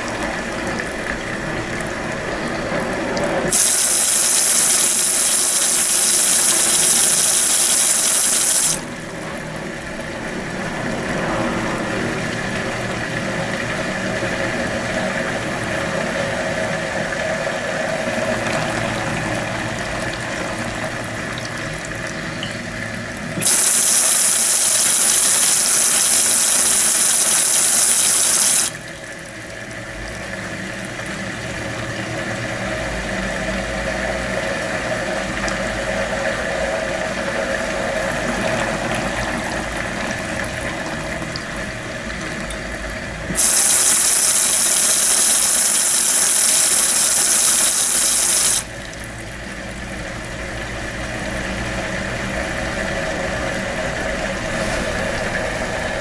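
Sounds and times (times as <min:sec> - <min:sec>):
washing machine water spray hiss: 0:00.0 - 0:21.8, 0:23.3 - 0:28.9, 0:33.8 - 0:50.0, 0:50.9 - 0:56.0
washing machine motor humming: 0:00.0 - 0:56.0.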